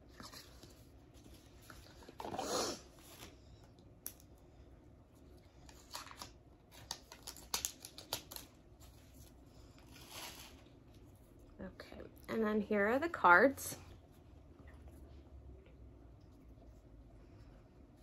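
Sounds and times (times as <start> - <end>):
paper packaging rustling: 5.6 - 11.1.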